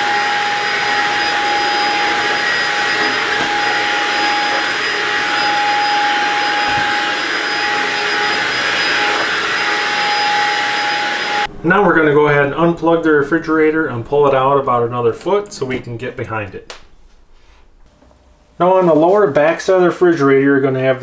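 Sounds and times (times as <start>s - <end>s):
vacuum cleaner running: 0.0s - 11.6s.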